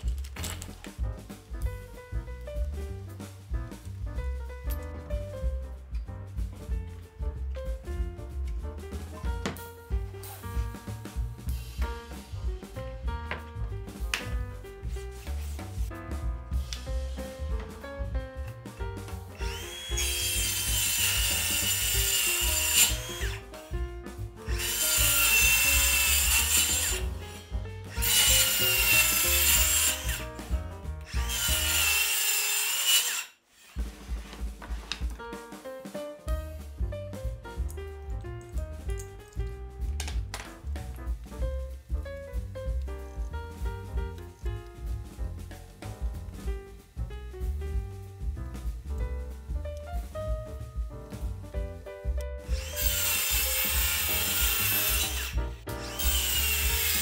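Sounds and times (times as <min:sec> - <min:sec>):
background music: 0:00.0 - 0:33.0, 0:33.8 - 0:57.0
circular saw cutting wood: 0:19.4 - 0:23.7, 0:24.5 - 0:33.9, 0:52.4 - 0:57.0.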